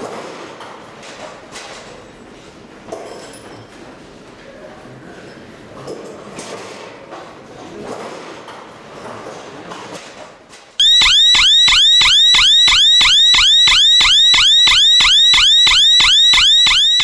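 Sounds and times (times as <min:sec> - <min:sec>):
siren whooping alarm: 0:10.8 - 0:17.0.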